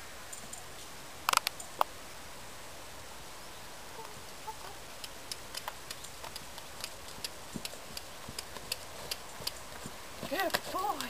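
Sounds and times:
horse hoofbeats on sand: 0:05.0 - 0:11.0.

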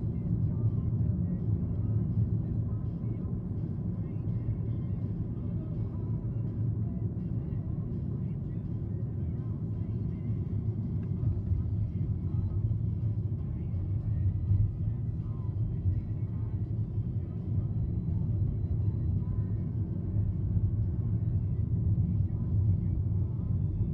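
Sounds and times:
car road noise: 0:00.0 - 0:23.9.

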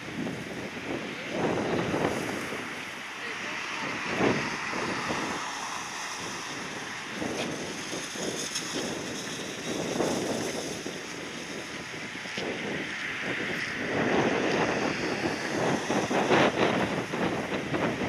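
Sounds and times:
gusty wind on microphone: 0:00.0 - 0:18.0.

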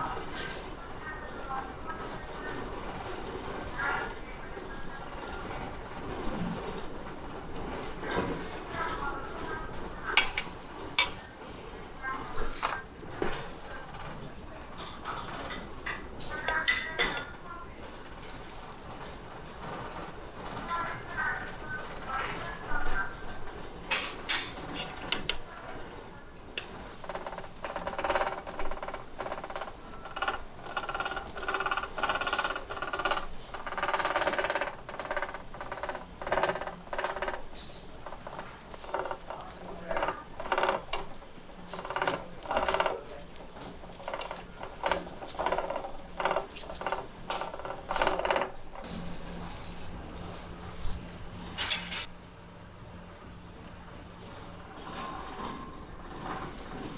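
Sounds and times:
steady hiss with low hum: 0:00.0 - 0:56.9
tableware and tongs clinking: 0:10.2 - 0:11.3, 0:48.8 - 0:52.1.

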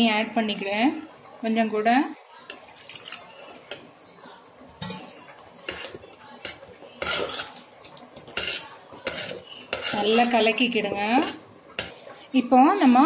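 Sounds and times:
metal ladle scraping a metal pot: 0:04.8 - 0:12.0.

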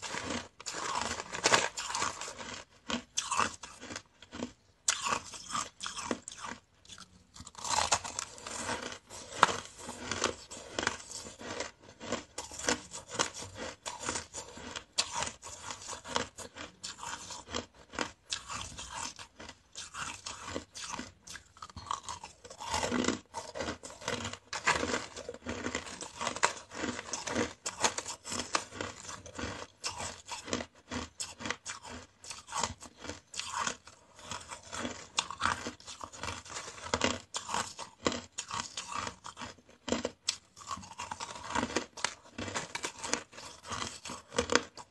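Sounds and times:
ice being crunched: 0:00.0 - 0:02.6, 0:07.5 - 0:17.4, 0:21.9 - 0:30.5.

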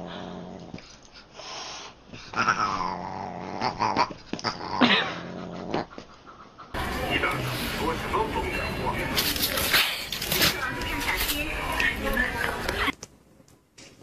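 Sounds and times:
dog growling: 0:00.0 - 0:00.9, 0:02.3 - 0:06.0.

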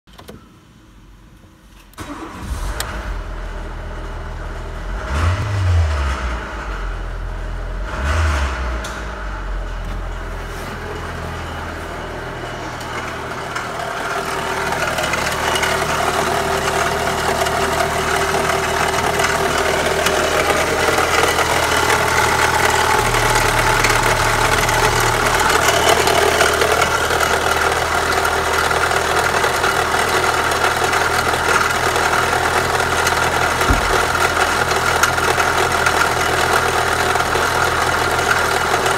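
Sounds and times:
car engine starting and idling: 0:01.7 - 0:38.9
engine revving: 0:02.0 - 0:09.8, 0:32.8 - 0:35.3.

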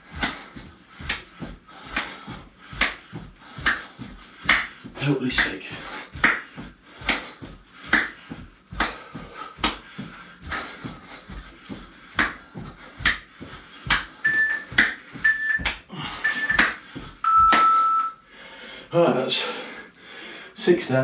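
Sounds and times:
body slapping on floor: 0:00.1 - 0:17.8
short high beeps: 0:14.2 - 0:14.6, 0:15.2 - 0:15.6, 0:16.2 - 0:18.2
long low beep: 0:14.2 - 0:18.2.

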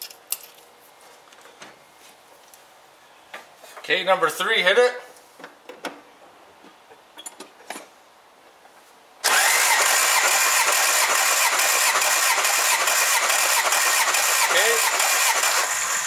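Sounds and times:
engine cranked by starter: 0:09.2 - 0:16.0.

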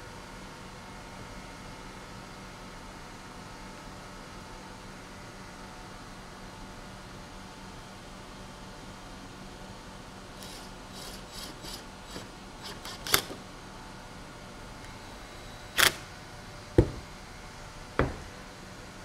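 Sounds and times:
drill knocking on a table: 0:16.8 - 0:17.1, 0:18.0 - 0:18.4.

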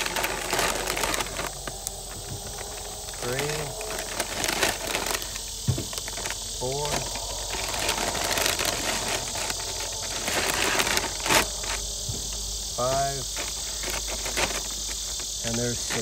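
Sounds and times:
insect chorus shrilling: 0:00.0 - 0:16.0
man's voice murmuring: 0:00.4 - 0:05.4, 0:06.1 - 0:13.4.

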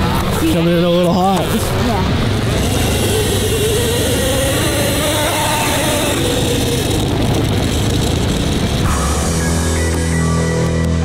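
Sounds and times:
dirt bike engine revving: 0:01.4 - 0:10.0.

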